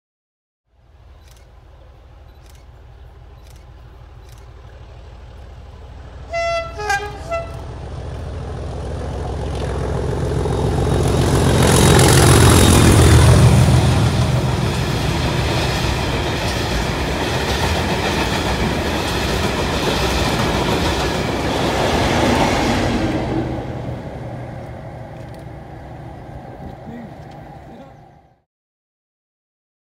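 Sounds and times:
diesel locomotive engines roaring: 0.7 - 28.4
train horn blasts: 6.2 - 7.9.

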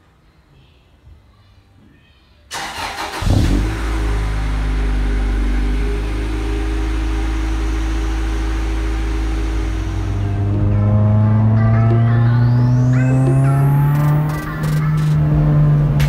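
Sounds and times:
car engine starting and idling: 2.5 - 16.0.

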